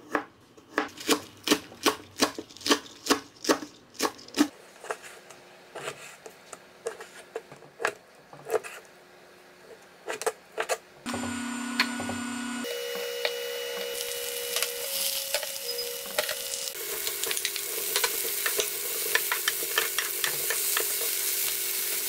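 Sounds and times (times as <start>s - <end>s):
steady hum: 11.1s - 19.0s.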